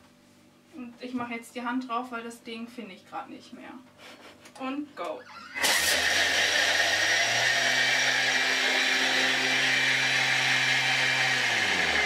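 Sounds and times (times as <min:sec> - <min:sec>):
food processor blades grinding: 0:05.5 - 0:12.0.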